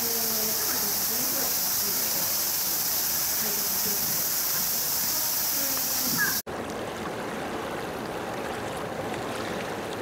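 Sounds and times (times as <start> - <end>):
cicada chorus drone: 0.0 - 6.4.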